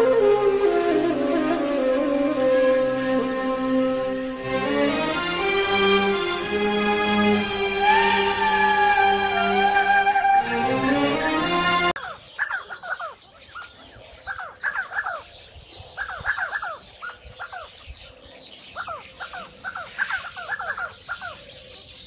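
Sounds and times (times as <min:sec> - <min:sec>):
faint high bird chirps: 0:12.0 - 0:22.0
sandgrouse calling: 0:12.0 - 0:22.0.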